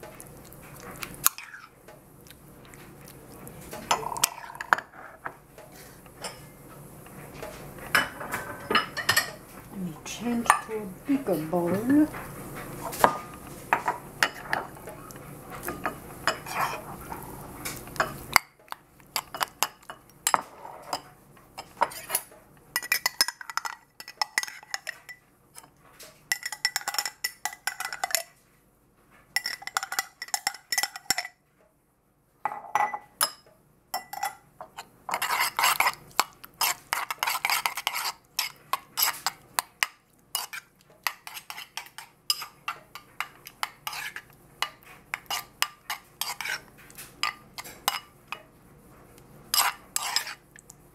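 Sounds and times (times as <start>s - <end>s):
metal spoon scraping ceramic bowl: 15.6s - 17.2s, 21.6s - 25.7s, 34.0s - 39.4s, 40.3s - 48.4s, 49.5s - 50.4s.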